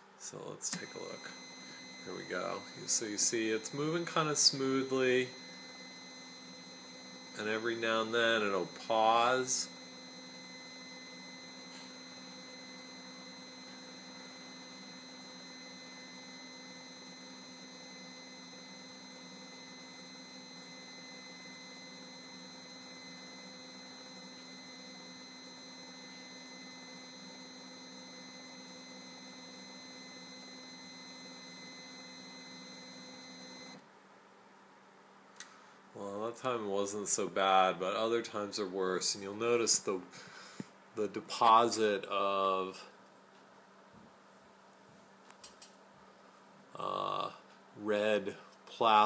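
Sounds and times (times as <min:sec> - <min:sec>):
stepper motor electric whine: 0:00.7 - 0:33.8.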